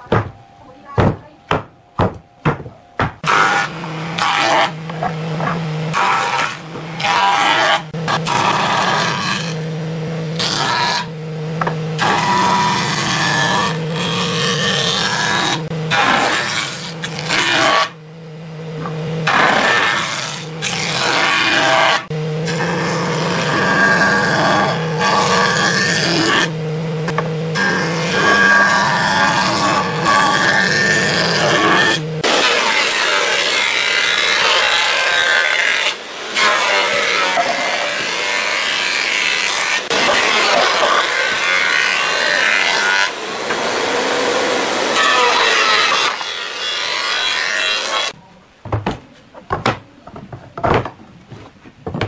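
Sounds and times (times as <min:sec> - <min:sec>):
wooden boards knocking: 0:00.0 - 0:00.4, 0:01.0 - 0:03.3, 0:04.2 - 0:05.6, 0:48.6 - 0:52.0
motor hum: 0:00.0 - 0:52.0
jointer planing boards: 0:01.0 - 0:52.0.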